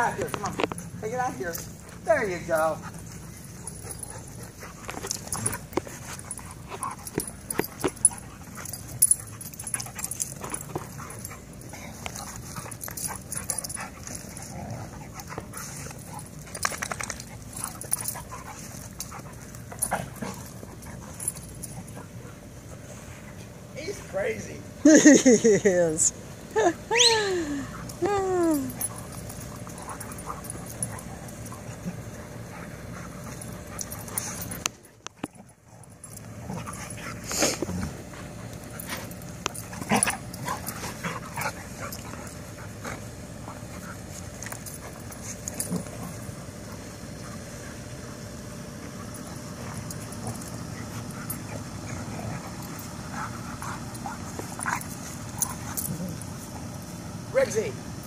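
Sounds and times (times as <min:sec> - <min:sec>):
dogs scuffling: 0:00.0 - 0:24.1
dog whining: 0:26.6 - 0:29.2.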